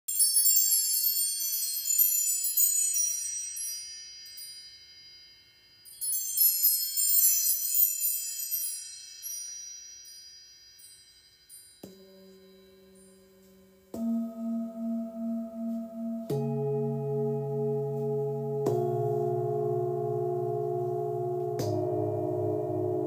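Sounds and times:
metal chimes cascade: 0.1 - 13.8
singing bowl struck: 13.9 - 23.0.

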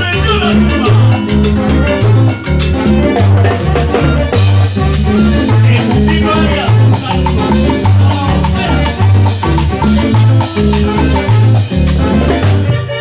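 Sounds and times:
bass line: 0.0 - 13.0
latin dance band playing: 0.0 - 13.0.

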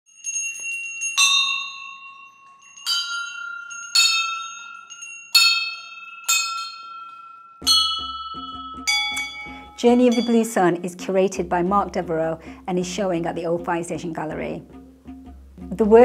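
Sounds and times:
small brass bells ringing: 0.1 - 10.8.

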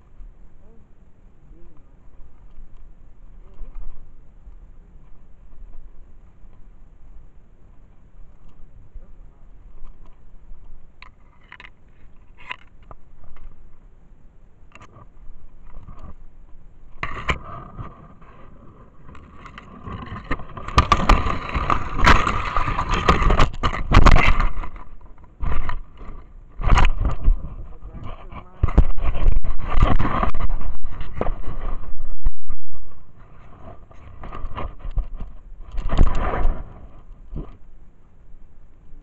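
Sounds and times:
brush rustling against camera: 14.8 - 37.7.

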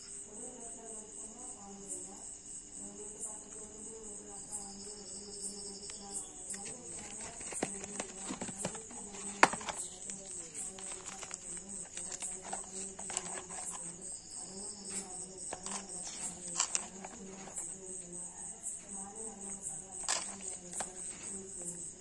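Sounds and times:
crickets chirping: 0.0 - 22.0
paper and cardboard rustling: 5.8 - 17.8, 19.0 - 22.0.

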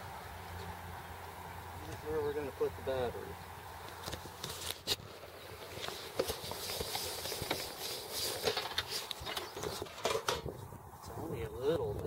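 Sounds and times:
steady hiss: 0.0 - 10.1
camera handling rustle: 3.9 - 10.5.

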